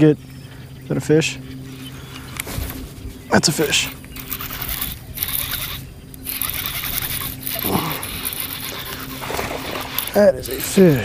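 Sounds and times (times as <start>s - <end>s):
fishing reel cranking: 3.4s - 11.0s.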